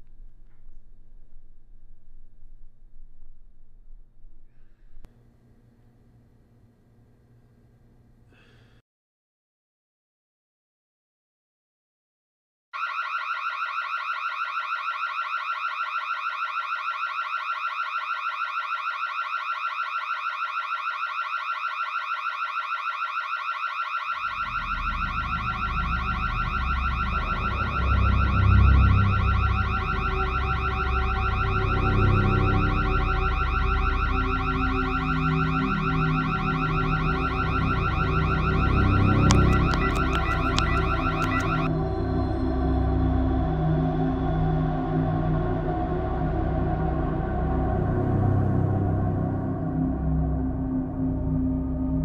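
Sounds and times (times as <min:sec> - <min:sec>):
low rumbling drone: 0:00.0 - 0:05.1, 0:24.3 - 0:52.0
security alarm pulsing tone: 0:12.8 - 0:43.4.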